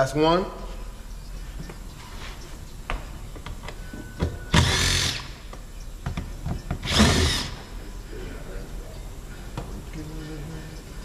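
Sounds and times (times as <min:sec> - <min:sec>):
power driver whirring: 0:04.5 - 0:05.4, 0:06.8 - 0:07.6.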